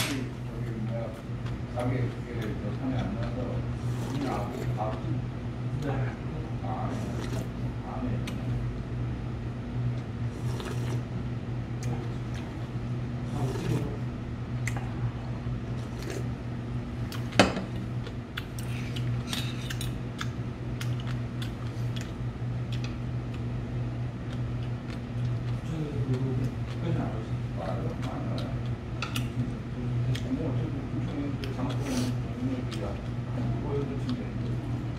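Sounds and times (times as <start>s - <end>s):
steady low hum: 0.0s - 34.9s
slurping broth: 3.8s - 4.8s, 6.9s - 7.6s, 10.3s - 11.1s, 13.2s - 14.0s, 15.8s - 16.3s.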